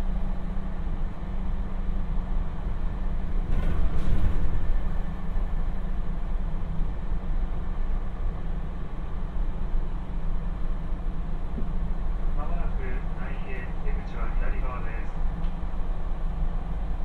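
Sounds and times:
train wheels rumbling on rails: 0.0s - 9.6s.

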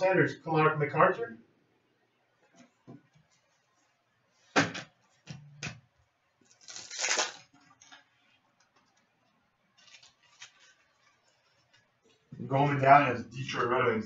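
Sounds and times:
cards rustling against each other: 9.8s - 11.9s.

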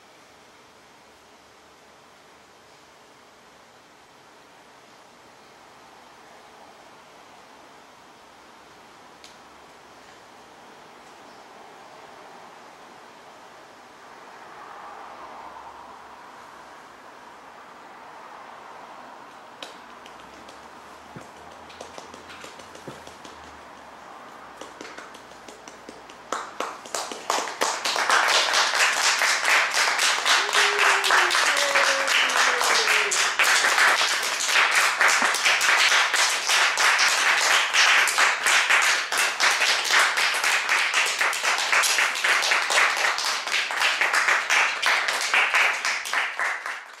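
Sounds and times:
audience applauding: 24.6s - 47.0s.

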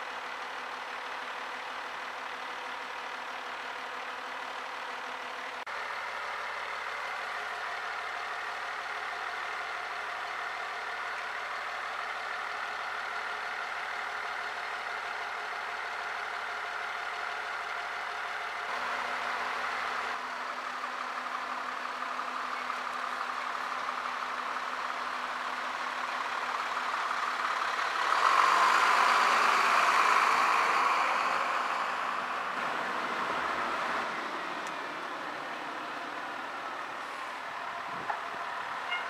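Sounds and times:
diesel engines idling: 0.0s - 39.0s
truck driving past: 0.1s - 39.0s.

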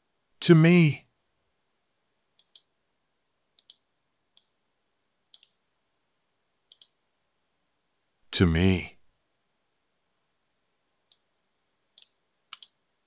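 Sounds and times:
computer mouse clicks: 2.4s - 2.7s, 3.5s - 4.6s, 5.3s - 5.6s, 6.6s - 7.0s, 11.1s - 11.3s, 11.9s - 12.8s.

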